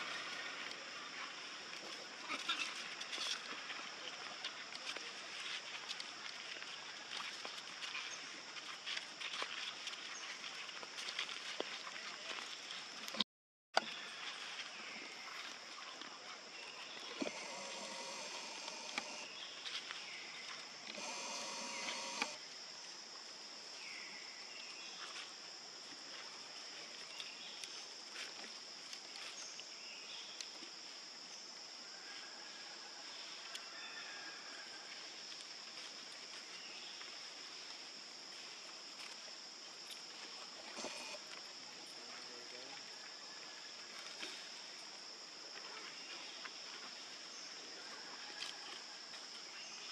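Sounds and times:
high insect drone: 0:13.9 - 0:49.9.

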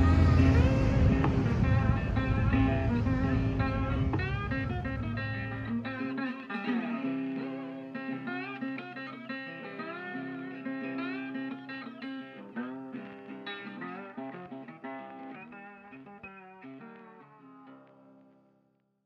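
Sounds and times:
plucked guitar with sliding notes: 0:00.0 - 0:18.5.

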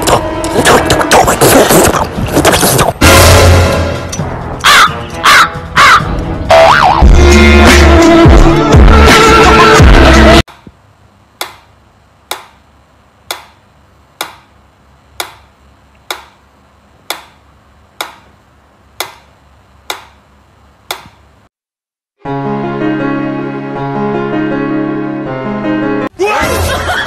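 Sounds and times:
loud music: 0:03.0 - 0:10.4.

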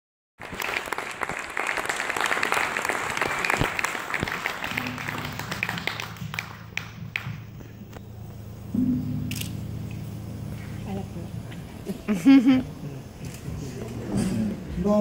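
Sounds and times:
audience applauding: 0:00.4 - 0:08.0
low steady hum: 0:04.8 - 0:14.6.

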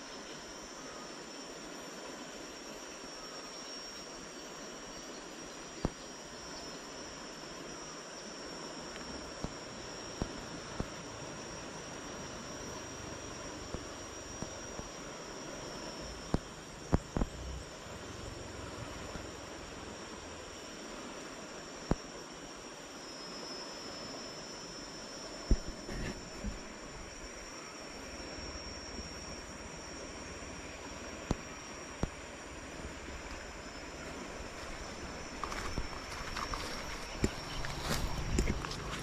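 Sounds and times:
high insect drone: 0:00.0 - 0:39.0
steady hiss: 0:00.0 - 0:39.0.

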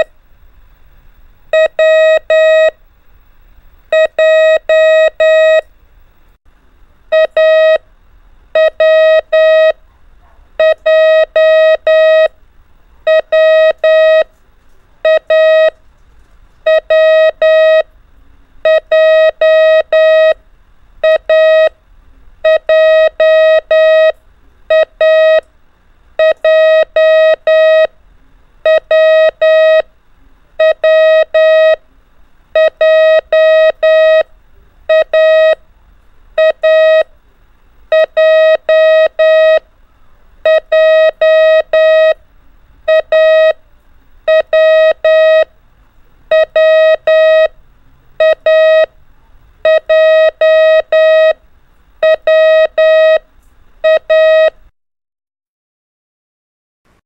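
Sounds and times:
morse code beeps: 0:01.5 - 0:02.8, 0:03.9 - 0:05.6, 0:07.1 - 0:07.8, 0:08.6 - 0:09.8, 0:10.6 - 0:12.3, 0:13.1 - 0:14.3, 0:15.0 - 0:15.8, 0:16.7 - 0:17.9, 0:18.7 - 0:20.4, 0:21.0 - 0:21.7, 0:22.4 - 0:25.4, 0:26.2 - 0:27.9, 0:28.6 - 0:29.9, 0:30.6 - 0:31.8, 0:32.6 - 0:34.3, 0:34.9 - 0:35.6, 0:36.4 - 0:37.1, 0:37.9 - 0:39.6, 0:40.4 - 0:42.2, 0:42.9 - 0:43.6, 0:44.3 - 0:45.5, 0:46.3 - 0:47.6, 0:48.2 - 0:48.9, 0:49.6 - 0:51.4, 0:52.0 - 0:53.2, 0:53.8 - 0:54.6.

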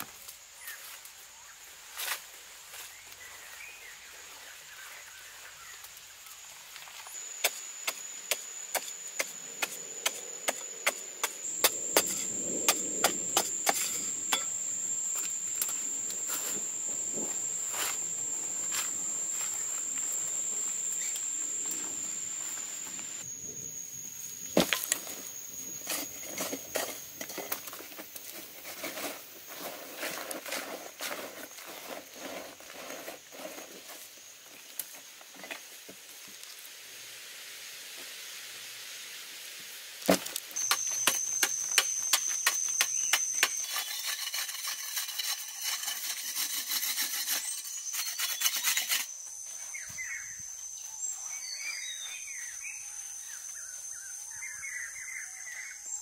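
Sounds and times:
high-pitched whine: 0:03.5 - 0:35.5, 0:40.2 - 0:56.0
hands scraping dry soil: 0:07.4 - 0:23.2, 0:24.5 - 0:34.2, 0:42.1 - 0:49.1.

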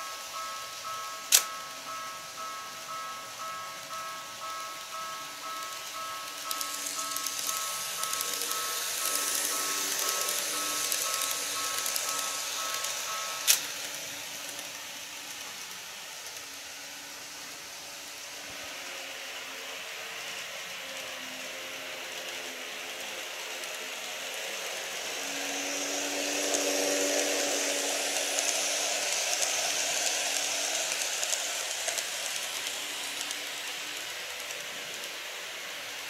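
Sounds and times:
wheels rattling on rails: 0:00.0 - 0:16.7, 0:19.5 - 0:36.0
model train motor whine: 0:00.0 - 0:36.0
sharp click: 0:01.3 - 0:01.6.

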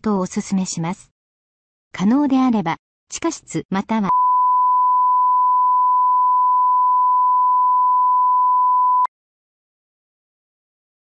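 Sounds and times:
electronic sine tone: 0:04.1 - 0:09.1.

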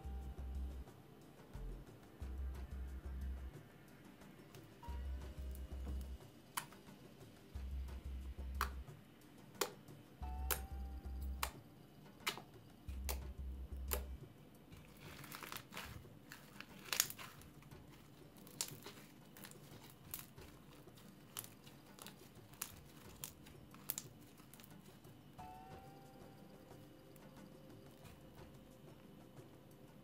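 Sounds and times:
slime crinkly stretching: 0:14.8 - 0:25.1.

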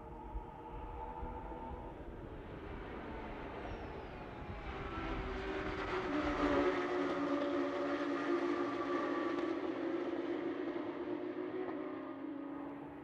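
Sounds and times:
race car engines running hard: 0:00.1 - 0:13.0.

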